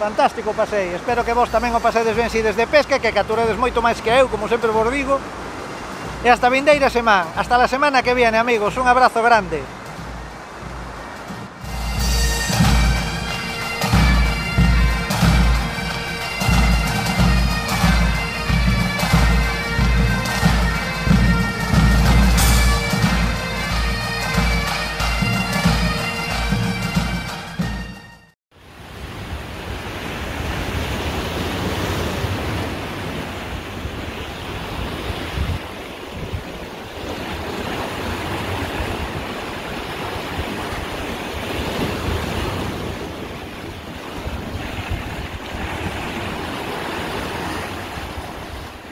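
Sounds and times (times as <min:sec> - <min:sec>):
sea surf: 0:00.0 - 0:48.9
bagpipe music: 0:09.7 - 0:28.4
wind rumbling on microphone: 0:28.7 - 0:48.9.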